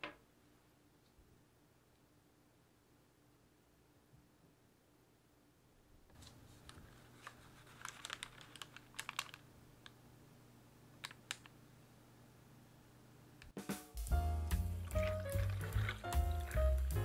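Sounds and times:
parchment paper crinkling: 6.1 - 10.0, 14.8 - 16.9.

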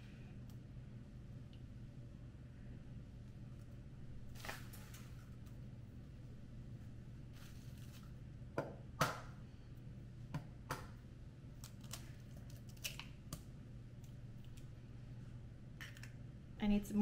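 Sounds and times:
low steady hum: 0.0 - 17.0
eggshell crackling: 11.5 - 14.9.

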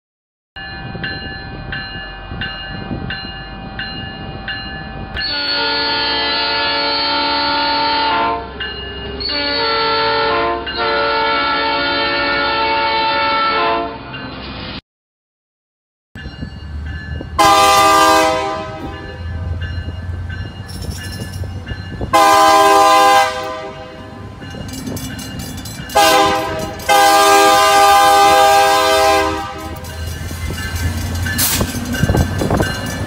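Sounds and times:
locomotive horn blasts: 5.2 - 8.6, 9.3 - 14.0, 17.4 - 19.2, 22.1 - 24.2, 25.9 - 29.9
low locomotive rumble: 16.2 - 33.0.

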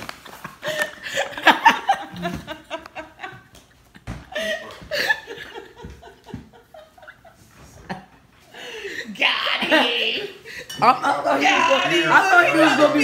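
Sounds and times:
people laughing: 0.4 - 13.0.

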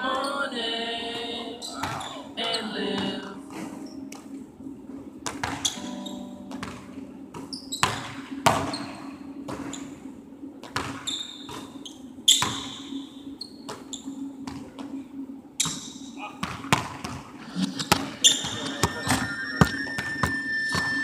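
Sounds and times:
sneaker squeaks: 1.6 - 2.2, 5.4 - 6.8, 7.4 - 9.9, 10.8 - 14.2, 15.6 - 16.2, 17.6 - 21.0
basketball hitting rim and backboard: 5.2 - 5.8, 6.5 - 8.9, 12.4 - 12.8, 16.4 - 17.2
basketball bouncing on gym floor: 6.5 - 8.9, 10.7 - 11.8, 12.4 - 12.8, 16.4 - 17.3.

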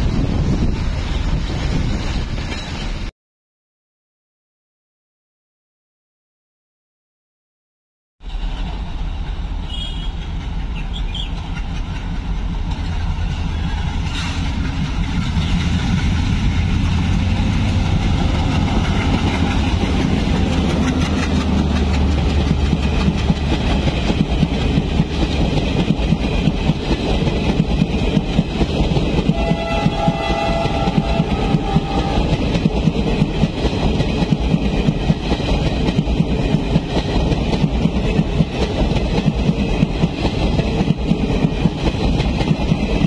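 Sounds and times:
diesel locomotive rumbling past: 0.0 - 3.1, 8.2 - 43.0
train wheels clattering over rail joints: 10.2 - 29.4, 30.1 - 43.0.

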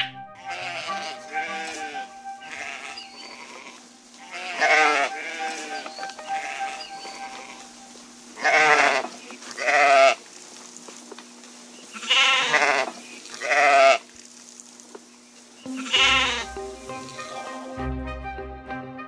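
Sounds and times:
sheep bleating: 0.4 - 7.8, 8.4 - 10.2, 11.9 - 14.1, 15.7 - 16.6.

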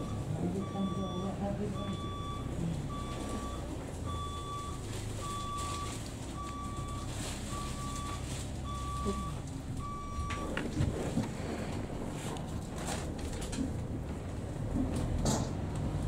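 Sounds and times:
reversing alarm beeping: 0.0 - 10.6
diesel engine hum: 0.0 - 16.0.

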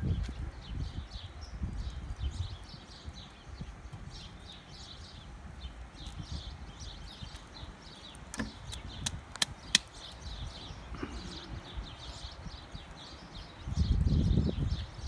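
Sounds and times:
small birds chirping: 0.0 - 15.0
sharp clicks: 8.3 - 10.2.

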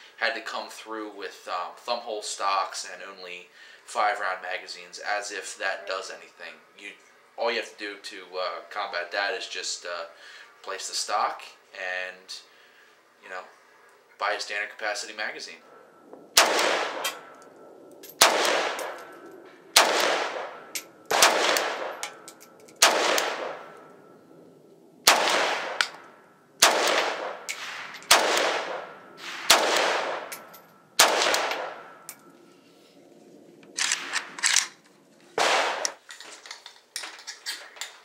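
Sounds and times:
rifle shots echoing: 16.3 - 24.1, 25.0 - 32.2, 33.8 - 34.6, 35.4 - 36.0.

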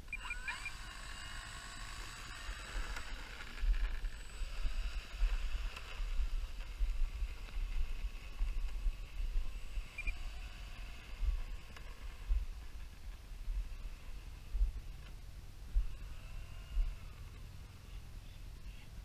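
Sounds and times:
electric motor and propeller whine: 0.0 - 18.2.

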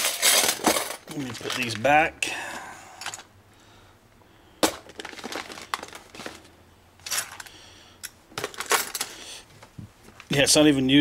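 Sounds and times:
small items clinking in a bag: 0.0 - 1.9, 4.8 - 7.5.

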